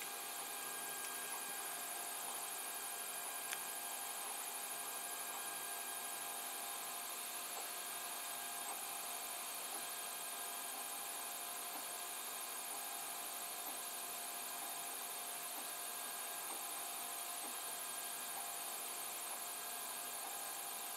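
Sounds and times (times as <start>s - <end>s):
cooling fans whirring: 0.0s - 4.5s
faint steady machine tones: 0.0s - 20.9s.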